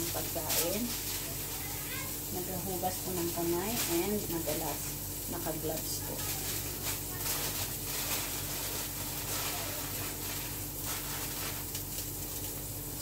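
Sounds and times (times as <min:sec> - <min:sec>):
steady low hum: 0:00.0 - 0:13.0
wrapping paper rustling: 0:00.0 - 0:13.0.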